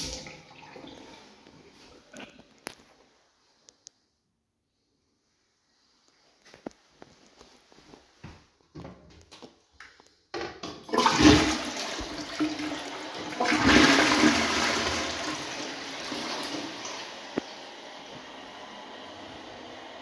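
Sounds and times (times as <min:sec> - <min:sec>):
toilet flushing: 0:00.0 - 0:02.1, 0:10.6 - 0:20.0.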